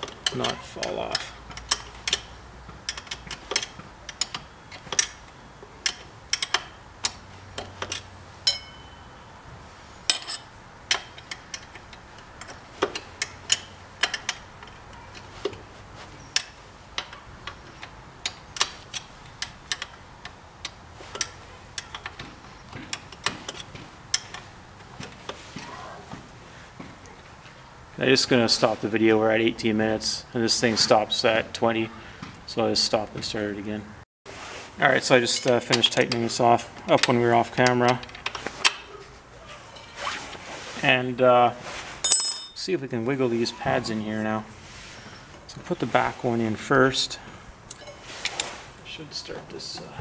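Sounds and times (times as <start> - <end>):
wrench clicking on bolt: 0.0 - 5.2, 5.8 - 8.6, 10.1 - 14.8, 16.4 - 22.2.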